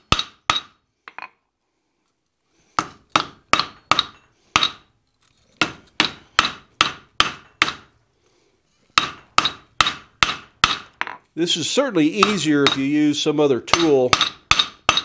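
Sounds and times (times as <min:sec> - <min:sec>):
hammer clanging on an anvil: 0:12.2 - 0:12.9, 0:13.7 - 0:15.0.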